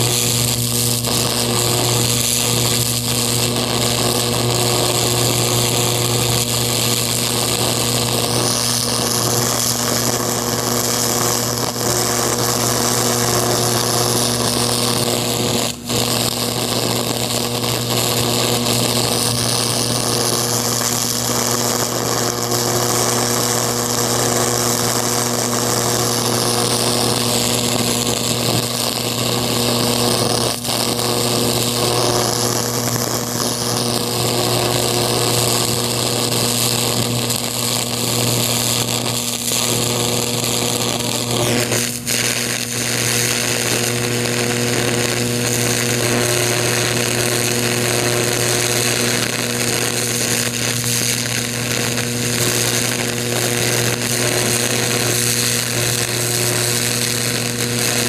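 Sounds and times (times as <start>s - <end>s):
electric arc buzzing: 0.0s - 58.0s
hissing crackle: 0.0s - 58.0s.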